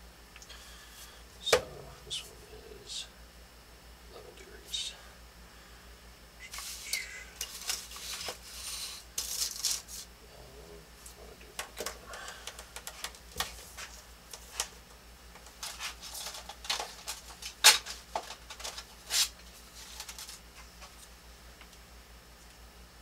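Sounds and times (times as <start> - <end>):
objects clicking and tapping: 11.6 - 14.7.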